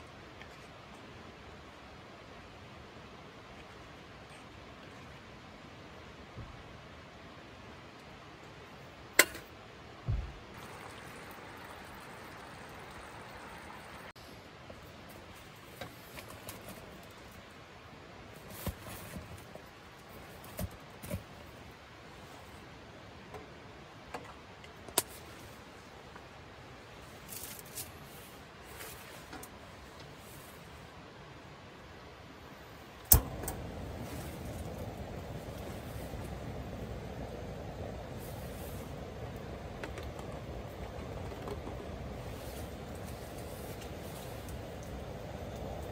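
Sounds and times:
faint steady hiss: 0:00.0 - 0:45.9
camp cooking gear clicks: 0:33.0 - 0:36.8
gas burner rushing: 0:33.0 - 0:45.9
gas stove igniter click: 0:33.1 - 0:34.8.

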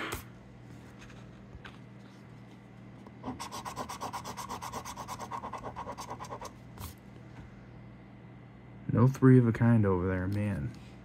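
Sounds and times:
coin scratching lottery ticket: 0:03.2 - 0:06.5.

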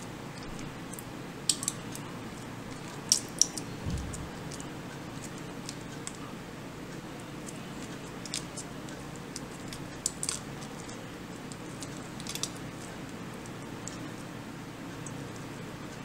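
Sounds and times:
steady background noise: 0:00.0 - 0:16.0
soft low thump: 0:03.8 - 0:04.4.

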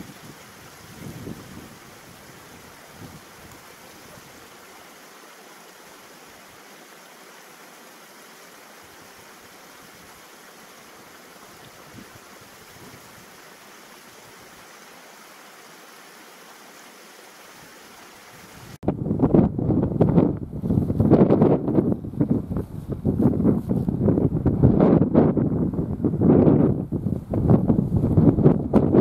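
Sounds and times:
wind buffeting microphone: 0:00.0 - 0:04.5, 0:18.8 - 0:29.0
stream running over rocks: 0:00.0 - 0:18.8.

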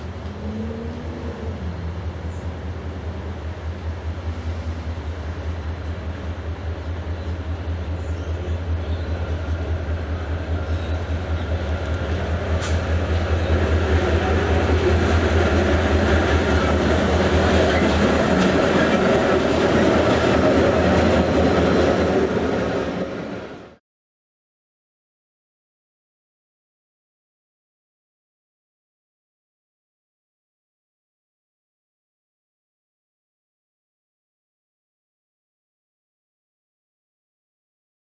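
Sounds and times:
diesel locomotive engine drone: 0:00.0 - 0:23.8.

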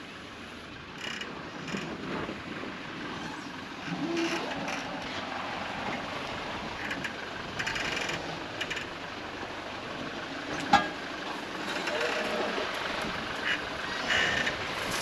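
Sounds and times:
vehicle engine and tyre noise: 0:00.0 - 0:15.0
vehicle creaking or squeaking: 0:01.0 - 0:02.3, 0:03.0 - 0:06.1, 0:06.7 - 0:09.0, 0:10.5 - 0:15.0.

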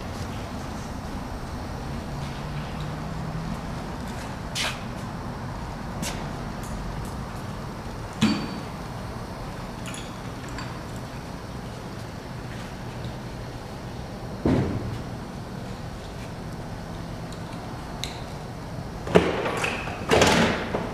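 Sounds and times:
low shop hum: 0:00.0 - 0:20.9.

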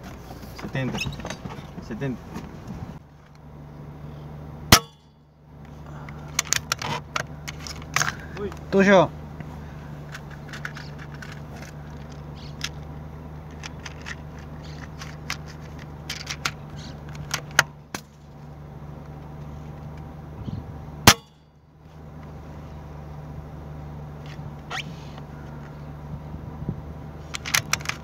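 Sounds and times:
steady low hum: 0:00.0 - 0:28.0
small clicks and knocks: 0:06.0 - 0:08.6, 0:10.0 - 0:12.9, 0:13.5 - 0:18.2, 0:27.2 - 0:28.0.

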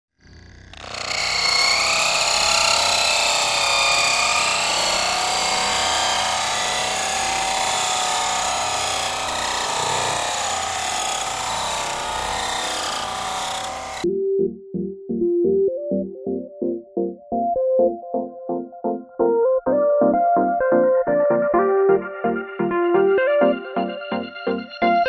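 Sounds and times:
electric motors and gears whining: 0:00.2 - 0:14.1.

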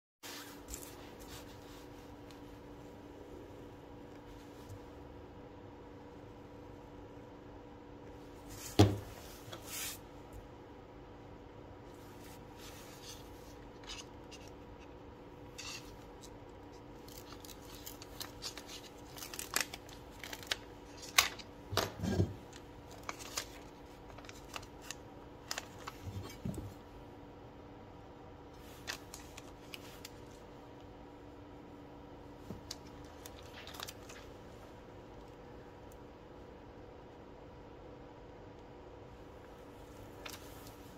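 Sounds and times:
filter sheet rustling and scraping: 0:00.2 - 0:02.8, 0:08.4 - 0:10.1, 0:11.9 - 0:26.8
faint steady hum: 0:00.2 - 0:40.9.

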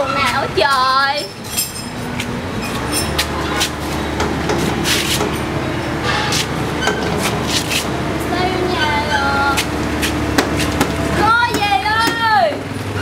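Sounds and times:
vehicle engine humming: 0:00.0 - 0:13.0
sharp knocks and clatters: 0:09.6 - 0:12.6.

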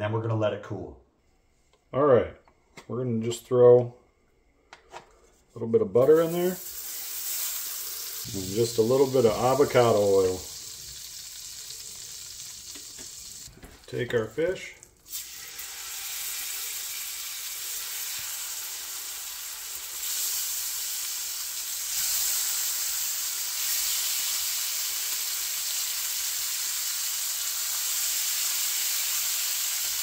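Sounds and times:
fish sizzling in a skillet: 0:06.2 - 0:13.6, 0:15.0 - 0:30.0.

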